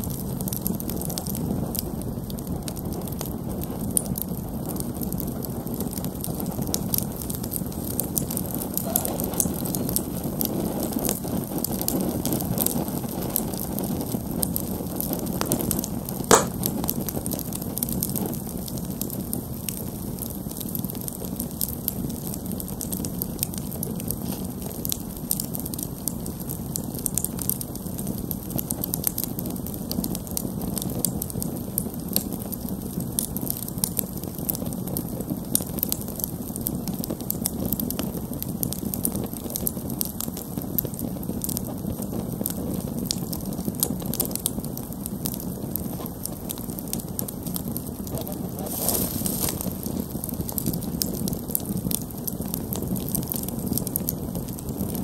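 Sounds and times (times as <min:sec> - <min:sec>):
low rush of flames: 0:00.0 - 0:55.0
wood crackling and popping: 0:00.0 - 0:55.0
sharp loud pop: 0:16.3 - 0:16.7.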